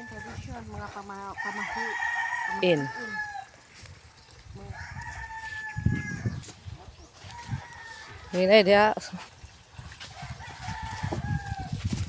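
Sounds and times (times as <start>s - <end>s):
rooster crowing: 1.4s - 3.6s, 4.7s - 6.4s, 7.2s - 8.4s, 10.2s - 11.8s.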